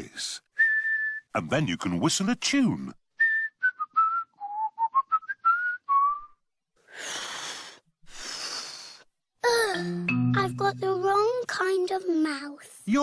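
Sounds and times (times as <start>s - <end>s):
man whistling a tune: 0.6s - 1.3s, 3.2s - 6.4s
child blowing air: 6.9s - 9.1s.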